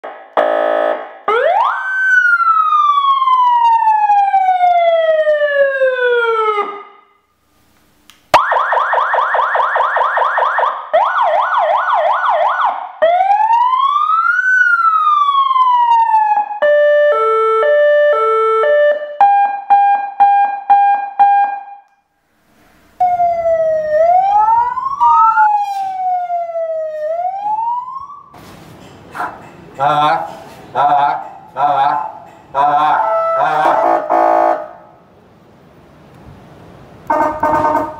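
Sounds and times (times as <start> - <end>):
electronic siren tones: 16.3 - 21.8, 22.8 - 28.3
buzzing horn blast: 33.4 - 34.8, 37.1 - 37.9.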